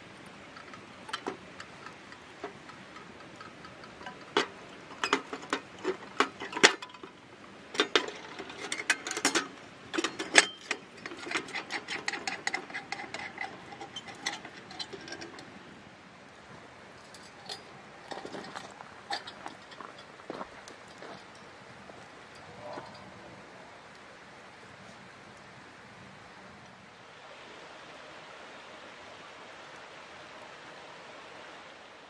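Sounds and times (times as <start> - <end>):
glass and metal parts clinking: 3.2 - 15.4, 17.0 - 20.1.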